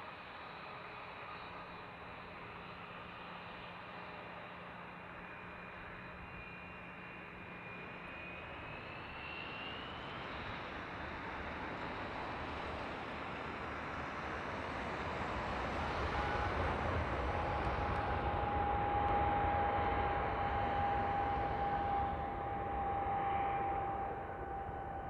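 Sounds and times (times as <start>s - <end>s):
jet engines spooling up: 5.2s - 25.0s.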